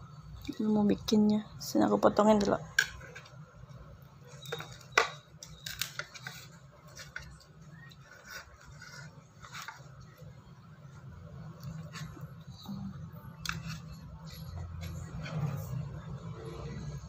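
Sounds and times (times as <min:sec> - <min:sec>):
metal spoon scraping a plate: 0:13.3 - 0:15.9.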